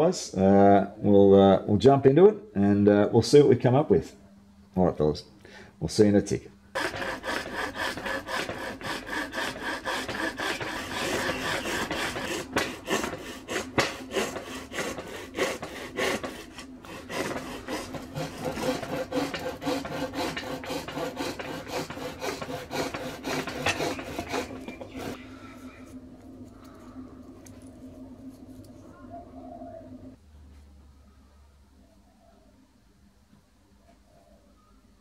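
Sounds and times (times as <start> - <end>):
hacksaw cutting hard plastic: 6.8 - 25.2.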